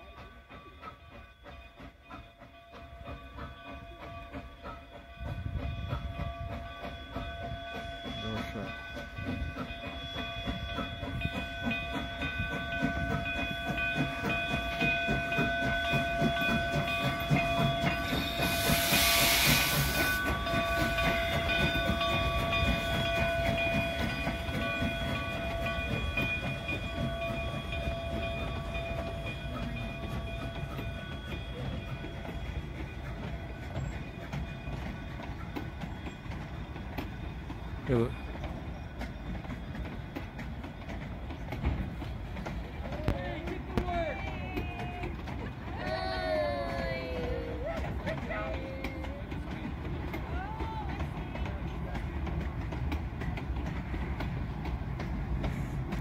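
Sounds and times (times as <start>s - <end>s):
steam hissing: 0.0s - 42.8s
train wheels rumbling on rail: 0.0s - 56.0s.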